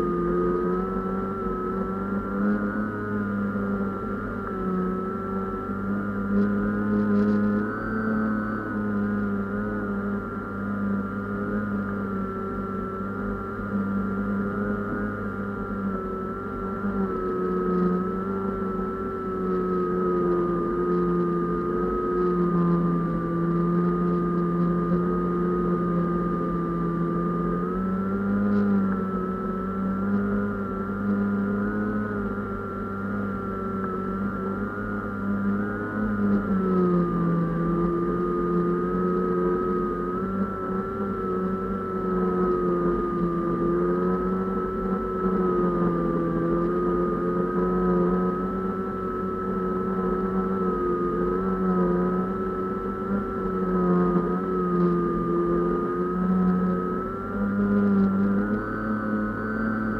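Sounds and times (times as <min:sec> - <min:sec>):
drone motor and propeller whine: 0:00.0 - 0:59.9.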